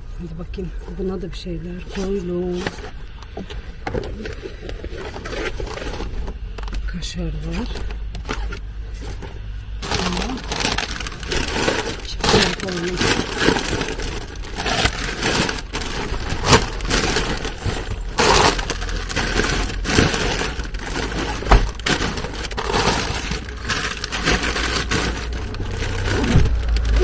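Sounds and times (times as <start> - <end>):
low steady rumble: 0.0 - 27.0
plastic bag crinkling: 7.5 - 27.0.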